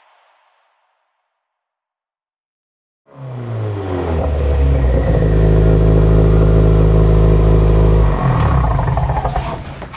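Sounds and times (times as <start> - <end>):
engine deep rumble: 3.2 - 9.8.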